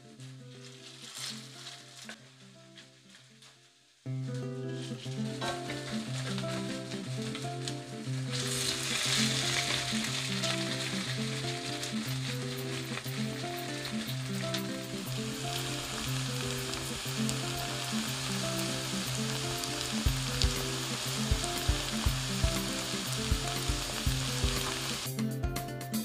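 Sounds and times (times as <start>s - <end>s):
background music with beat: 4.1s - 26.0s
fritters sizzling in oil: 8.2s - 25.1s.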